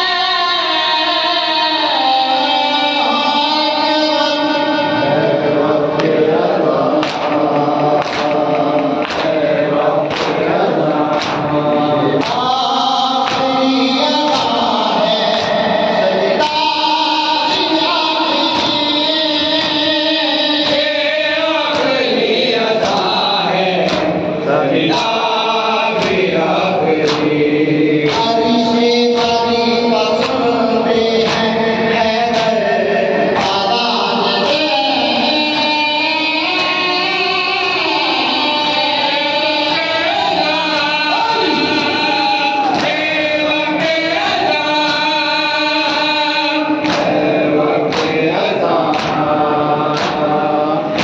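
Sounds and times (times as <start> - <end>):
man singing lament into microphone: 0.0 - 51.0
hands slapping chests: 6.0 - 6.2, 7.0 - 11.5, 12.2 - 12.5, 13.2 - 13.6, 14.3 - 14.6, 22.8 - 23.2, 23.8 - 24.2, 25.9 - 27.4, 28.0 - 28.4, 30.2 - 30.4, 31.2 - 31.5, 32.3 - 32.6, 33.4 - 33.6, 41.8 - 43.0, 46.8 - 51.0.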